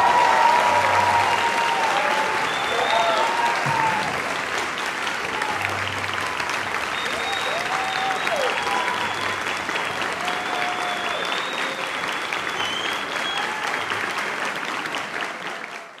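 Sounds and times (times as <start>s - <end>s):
audience applauding: 0.0s - 16.0s
long whistles: 0.8s - 3.6s, 6.9s - 9.5s, 10.4s - 14.0s.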